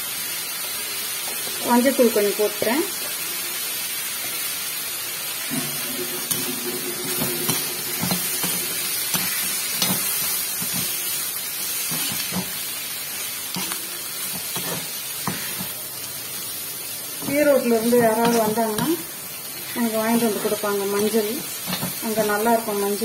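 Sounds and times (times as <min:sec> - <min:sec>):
vegetables sizzling in a pan: 0:00.0 - 0:23.0
metal ladle scraping a pan: 0:05.5 - 0:11.1, 0:13.5 - 0:15.8.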